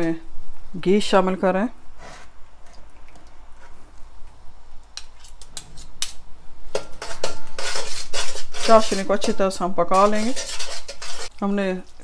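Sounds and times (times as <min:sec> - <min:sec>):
metal spoon scraping metal pan: 0:05.0 - 0:11.4.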